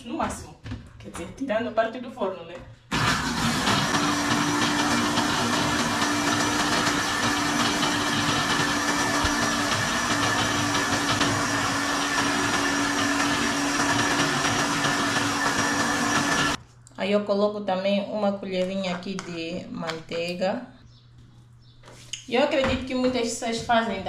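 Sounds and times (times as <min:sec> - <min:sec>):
blender running: 0:02.9 - 0:16.6.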